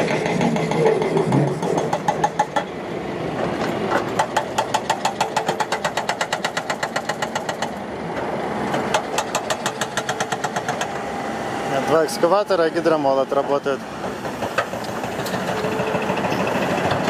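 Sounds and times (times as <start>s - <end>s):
hydraulic breaker hammering rock: 0.0s - 2.7s, 4.0s - 7.8s, 8.8s - 11.0s
excavator engine running: 0.0s - 12.8s, 13.7s - 17.0s.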